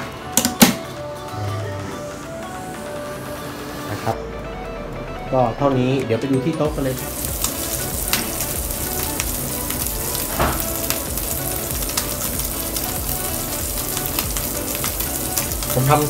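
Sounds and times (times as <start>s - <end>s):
oil popping: 4.1s - 16.0s
meat sizzling in hot oil: 6.7s - 16.0s.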